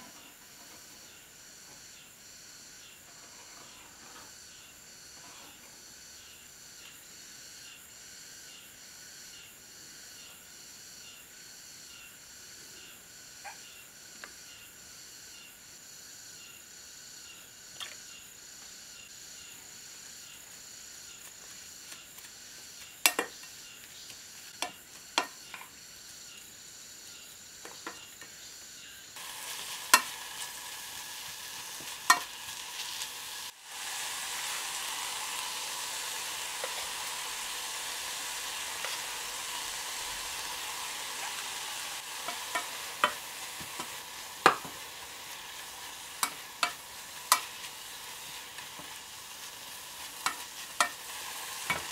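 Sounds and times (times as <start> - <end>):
vegetables sizzling in a pan: 0.0 - 51.9
spoon clicking against pan: 32.1 - 32.3, 42.2 - 43.2, 46.2 - 47.5, 50.2 - 51.0.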